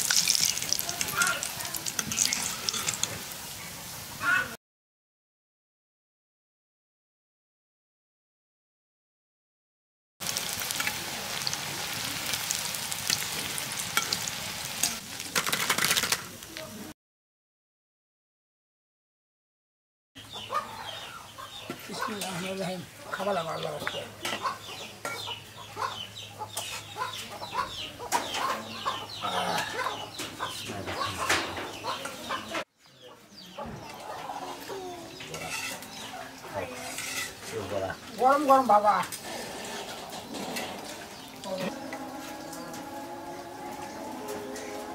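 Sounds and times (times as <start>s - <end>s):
oil popping and crackling: 0.0s - 3.5s, 10.2s - 16.8s
pakoras frying in hot oil: 0.0s - 4.5s, 10.2s - 17.0s, 20.4s - 30.6s, 33.4s - 44.9s
chickens clucking: 20.2s - 44.9s.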